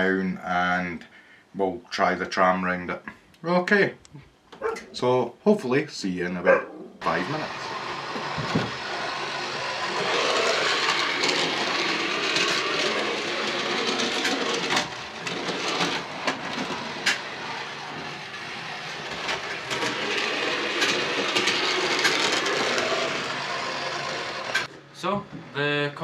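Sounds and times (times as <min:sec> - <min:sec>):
model tram rattling on track: 0:07.2 - 0:24.7.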